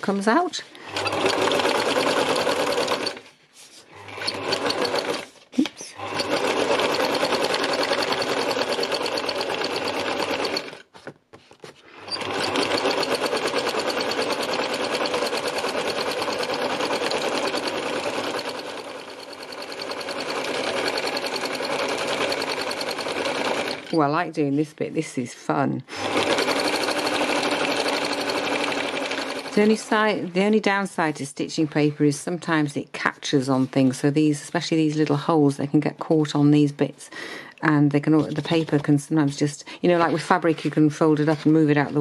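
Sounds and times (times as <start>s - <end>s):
sewing machine running: 0.8s - 3.3s, 3.9s - 5.4s, 6.0s - 10.9s, 11.9s - 24.1s, 26.0s - 30.3s, 39.8s - 42.0s.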